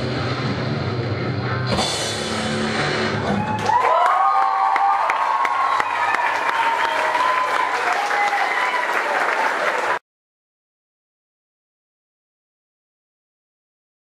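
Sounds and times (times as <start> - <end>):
audience clapping: 3.4 - 10.0.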